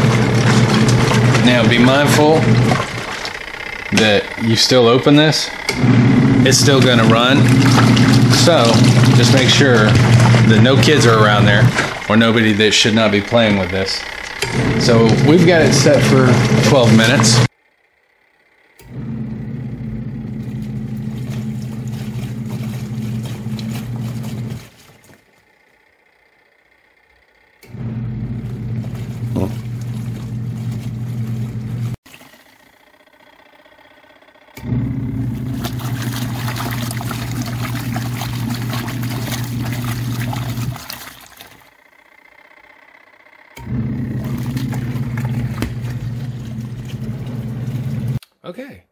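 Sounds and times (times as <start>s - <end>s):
water sloshing and splashing: 0.0s - 17.4s, 20.4s - 25.6s, 28.5s - 33.0s, 34.9s - 41.9s, 43.7s - 48.2s
washing machine motor humming: 0.0s - 48.2s.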